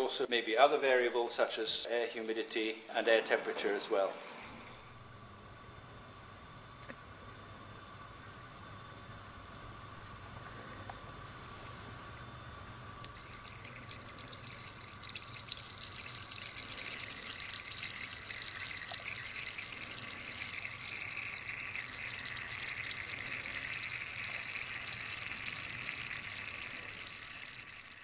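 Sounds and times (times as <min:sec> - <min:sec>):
thin water jets hissing and pattering: 0:13.2 - 0:28.0.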